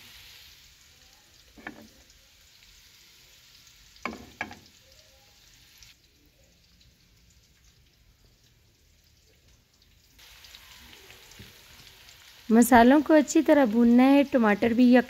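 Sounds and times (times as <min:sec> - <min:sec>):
onions frying in oil: 0:00.0 - 0:15.0
metal spoon knocking on pan: 0:01.6 - 0:02.0, 0:04.0 - 0:04.7.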